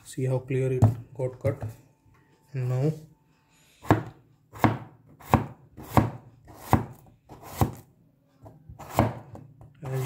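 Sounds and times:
cleaver slicing potato on board: 3.8 - 7.8, 8.7 - 10.0.

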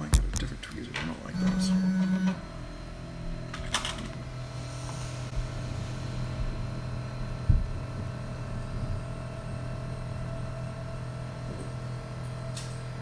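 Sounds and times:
printer humming: 0.0 - 13.0.

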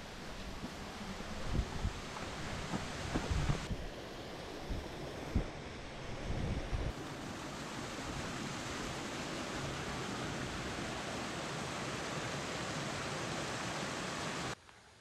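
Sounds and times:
wind on microphone: 0.6 - 7.0.

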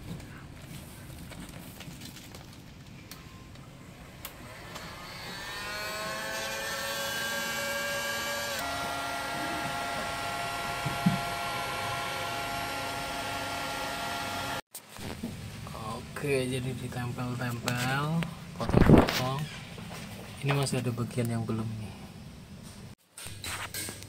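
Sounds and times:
heat gun fan motor whine: 3.9 - 14.6.

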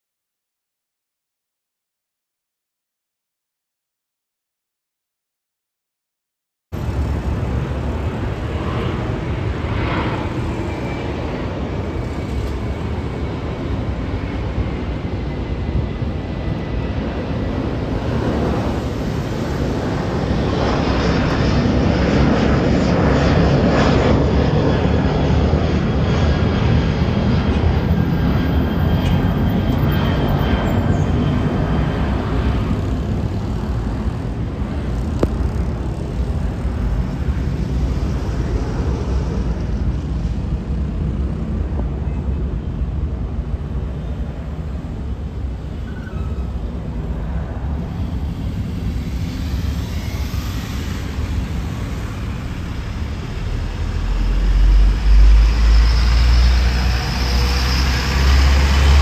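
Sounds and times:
jet engines rumbling: 6.8 - 59.0
faint high whine: 43.8 - 59.0.

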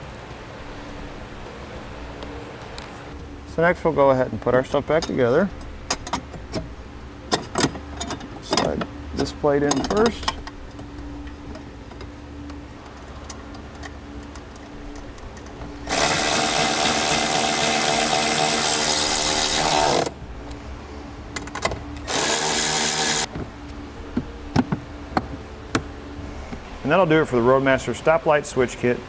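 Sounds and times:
electric ratchet running: 15.8 - 20.2, 22.0 - 23.3.

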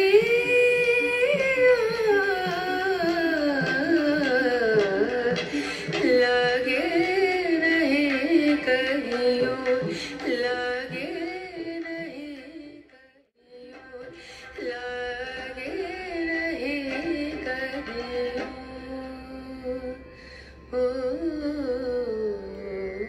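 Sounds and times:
song with singing over instruments: 0.0 - 22.9.

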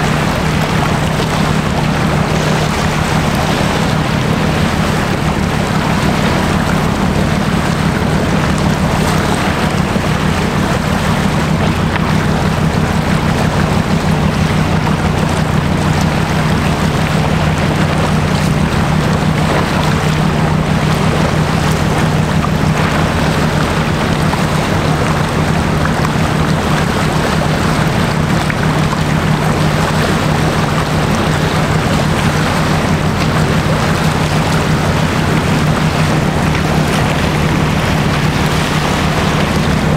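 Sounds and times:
ship diesel engine drone: 0.0 - 39.9
wind and water hiss: 0.0 - 39.9.

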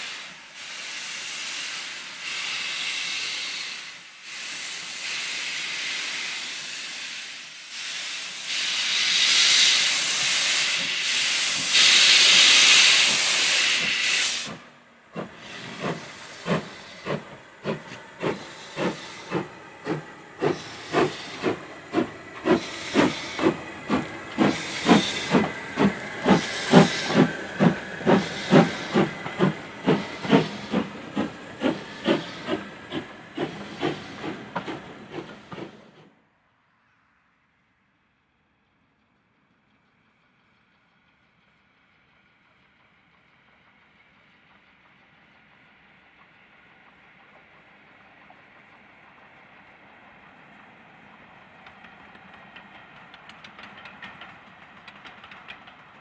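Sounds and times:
steam locomotive exhaust beats: 0.0 - 36.0, 42.9 - 56.0
steam hissing from locomotive: 0.0 - 36.1.

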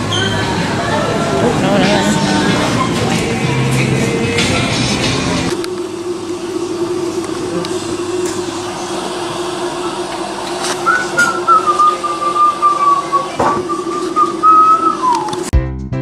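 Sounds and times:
steady low hum: 0.6 - 15.5
high whistling tone: 10.8 - 15.5.

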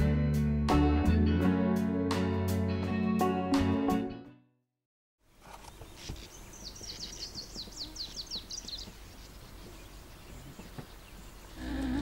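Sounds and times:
faint outdoor background noise: 5.2 - 12.0
songbird singing: 5.2 - 12.0.

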